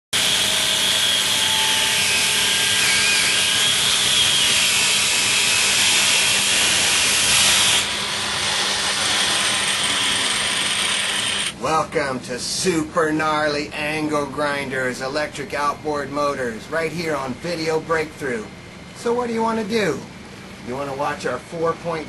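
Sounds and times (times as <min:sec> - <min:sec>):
angle grinder grinding metal: 0:00.2 - 0:11.5.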